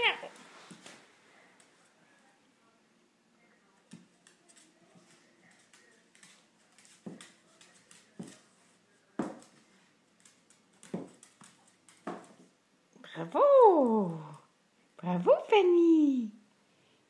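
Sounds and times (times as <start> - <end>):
dog paws clicking on tile: 3.8 - 12.6.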